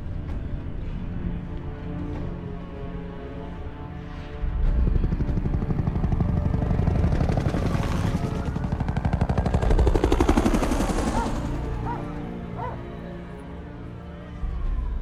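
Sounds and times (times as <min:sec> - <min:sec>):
helicopter rotor chopping: 0:04.6 - 0:12.8.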